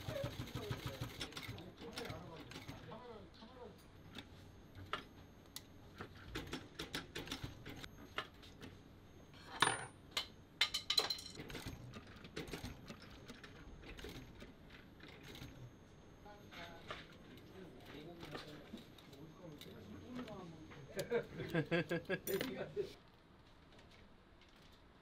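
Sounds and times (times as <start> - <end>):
sewing machine stitching leather: 11.4 - 15.6.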